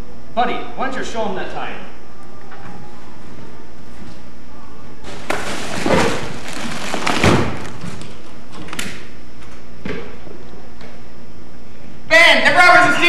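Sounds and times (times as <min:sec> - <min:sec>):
fabric panels rustling and scraping: 0:05.0 - 0:08.0.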